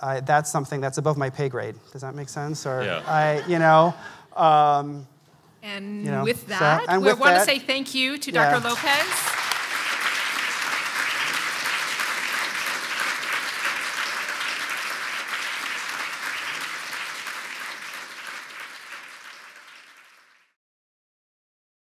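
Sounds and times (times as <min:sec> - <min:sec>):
audience applauding: 0:06.2 - 0:07.6, 0:08.4 - 0:20.6.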